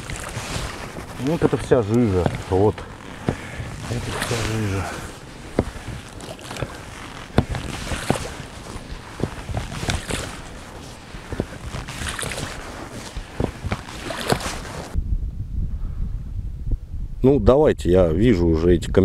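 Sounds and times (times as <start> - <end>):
water and mud sloshing: 0.0 - 15.0
knocks against boat hull: 5.5 - 6.7.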